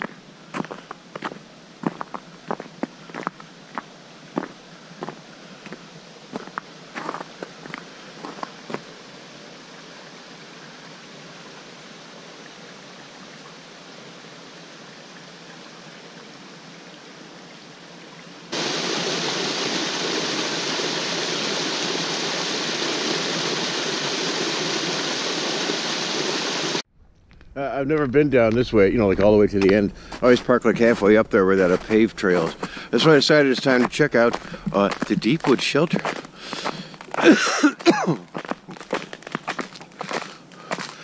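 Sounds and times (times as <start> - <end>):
footsteps crunching in snow: 0.0 - 8.9, 29.0 - 41.0
creek rushing and splashing: 0.0 - 26.9, 29.6 - 41.0.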